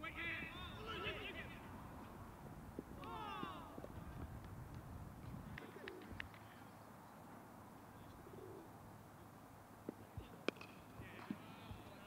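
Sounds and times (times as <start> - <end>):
pigeon cooing: 5.6 - 6.2, 8.0 - 8.7.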